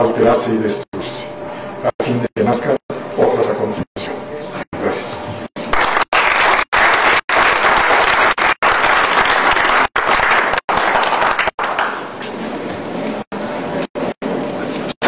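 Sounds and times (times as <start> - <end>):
small audience applauding: 5.7 - 12.2.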